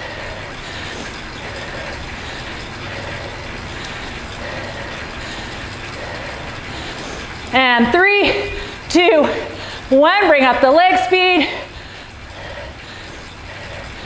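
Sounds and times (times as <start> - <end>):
bicycle trainer whirring: 0.0 - 14.0.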